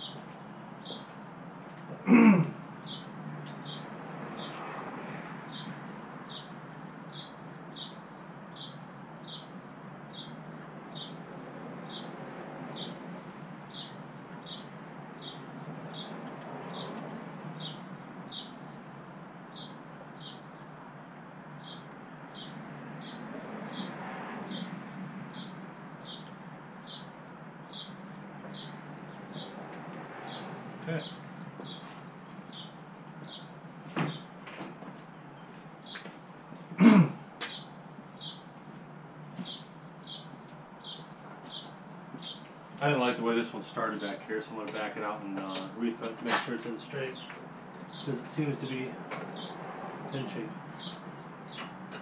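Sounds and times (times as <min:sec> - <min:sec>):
small bird chirping: 0:13.7 - 0:23.9, 0:25.3 - 0:29.6, 0:30.2 - 0:34.3, 0:37.4 - 0:38.5, 0:39.3 - 0:42.6.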